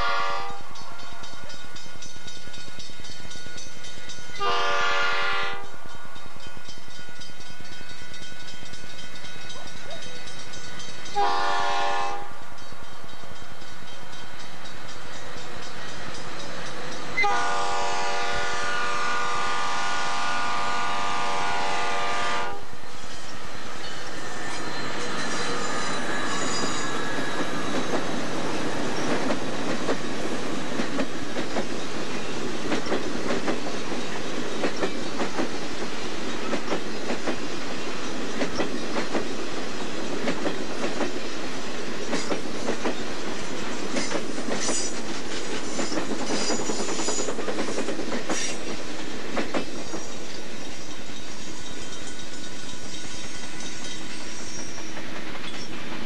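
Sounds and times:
diesel locomotive passing: 0.0 - 56.0
train wheels clacking over joints: 23.0 - 56.0.

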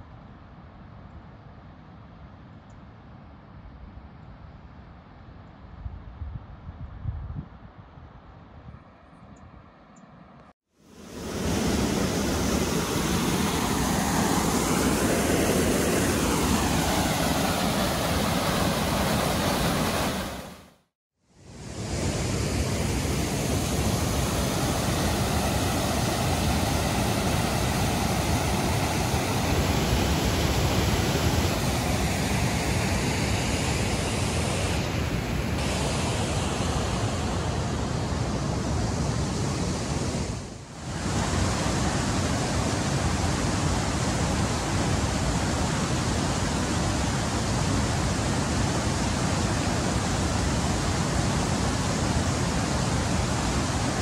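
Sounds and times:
river rapids rushing: 11.0 - 20.7, 21.6 - 40.2.

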